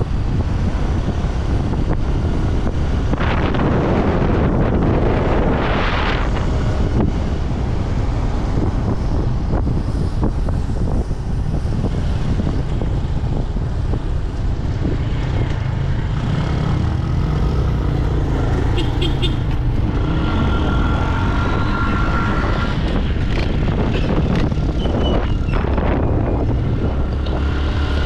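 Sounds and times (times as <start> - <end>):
vehicle road and engine rumble: 0.0 - 28.0.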